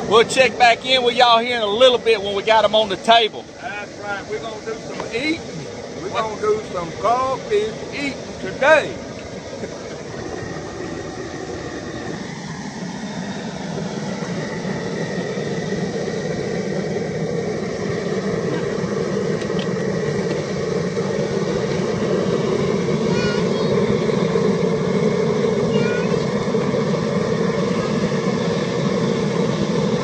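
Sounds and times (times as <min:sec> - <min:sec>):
propane burner roaring: 0:00.0 - 0:30.0.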